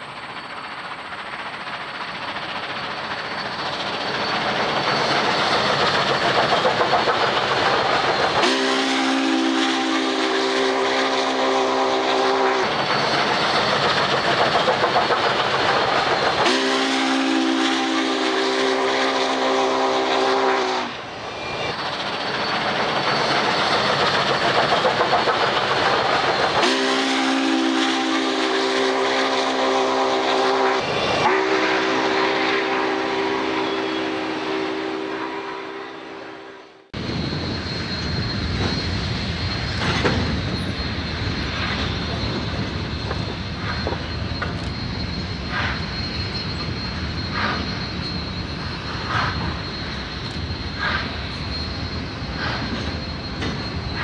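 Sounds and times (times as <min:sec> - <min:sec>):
steam locomotive whistle: 0:08.2 - 0:12.8, 0:16.1 - 0:21.1, 0:26.4 - 0:36.9.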